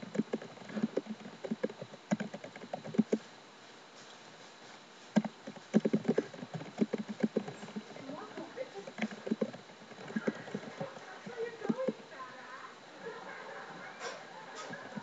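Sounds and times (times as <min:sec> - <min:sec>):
computer keyboard typing: 0:00.0 - 0:03.2, 0:05.2 - 0:12.0.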